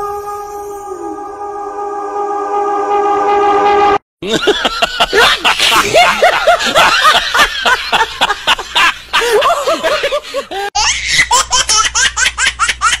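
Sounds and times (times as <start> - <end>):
person laughing loudly: 4.2 - 11.9.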